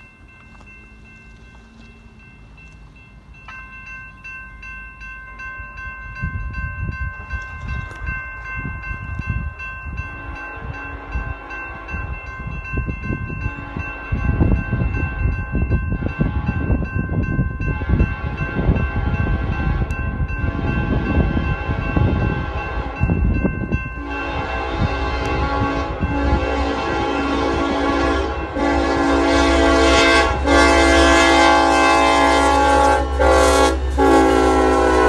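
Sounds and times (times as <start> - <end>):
diesel locomotive engine rumble: 0.0 - 35.0
multi-chime air horn: 17.6 - 35.0.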